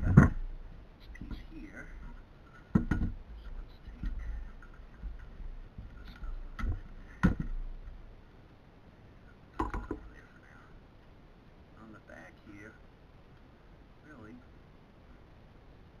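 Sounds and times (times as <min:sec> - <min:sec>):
electronic parts knocking and clicking: 0:00.0 - 0:00.4, 0:01.1 - 0:07.6, 0:09.6 - 0:10.2.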